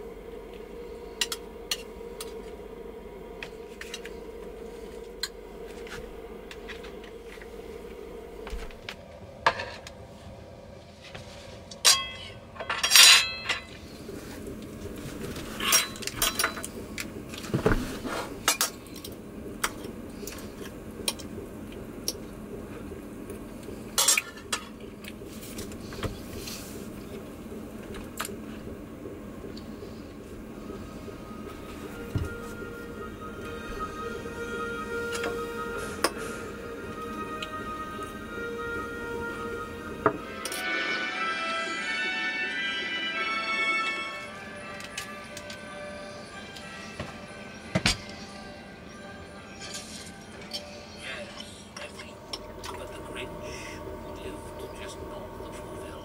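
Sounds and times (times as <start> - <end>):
steady hum: 0.0 - 56.0
cutlery and plates clinking: 11.8 - 13.7.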